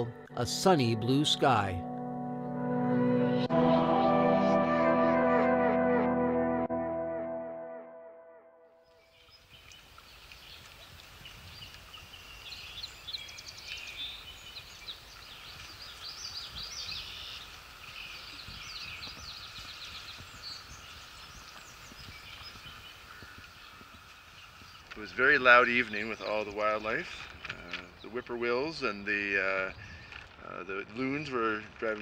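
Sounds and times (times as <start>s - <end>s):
songbirds chirping: 0.0s - 2.4s, 8.9s - 32.0s
background music: 0.0s - 8.8s.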